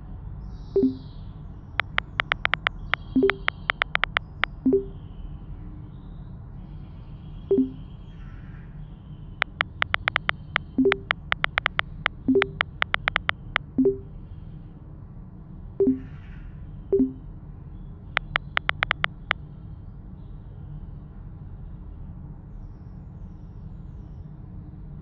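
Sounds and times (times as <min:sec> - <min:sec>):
low two-note message blip: 0:00.8 - 0:01.0, 0:03.2 - 0:05.0, 0:07.5 - 0:07.8, 0:10.8 - 0:14.1, 0:15.8 - 0:16.0, 0:17.0 - 0:17.2
phone keyboard typing clicks: 0:00.8 - 0:01.0, 0:01.8 - 0:04.9, 0:07.5 - 0:07.8, 0:09.4 - 0:14.1, 0:15.8 - 0:16.0, 0:17.0 - 0:17.2, 0:18.2 - 0:19.3
low steady hum: 0:00.8 - 0:01.2, 0:01.8 - 0:05.2, 0:07.5 - 0:08.0, 0:09.4 - 0:14.4, 0:15.8 - 0:16.2, 0:17.0 - 0:17.4.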